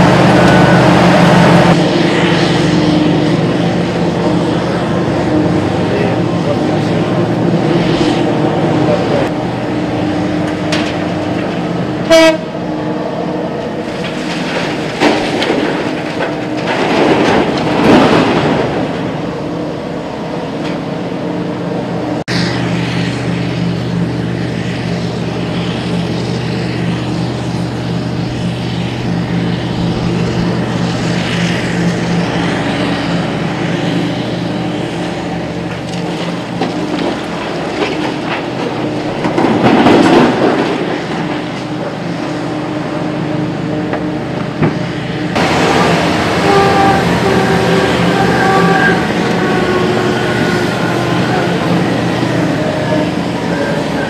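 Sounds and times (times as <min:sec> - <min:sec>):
diesel engines droning: 0:00.0 - 0:54.0
horn blast: 0:12.0 - 0:12.6, 0:45.3 - 0:54.0.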